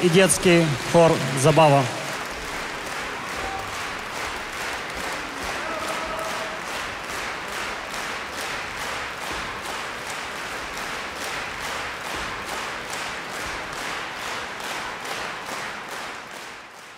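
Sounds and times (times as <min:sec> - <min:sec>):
audience clapping in rhythm: 0:00.0 - 0:16.9.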